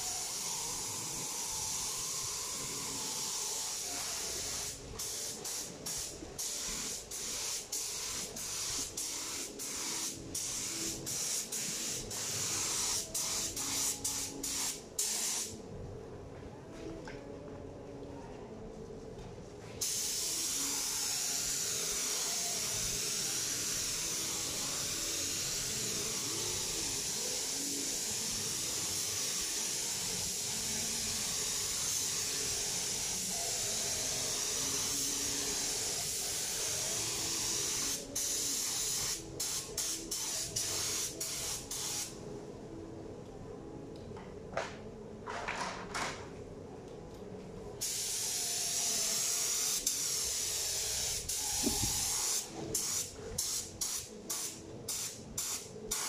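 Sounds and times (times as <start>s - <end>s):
spray gun hissing: 0.0s - 15.5s, 19.8s - 42.1s, 47.8s - 56.0s.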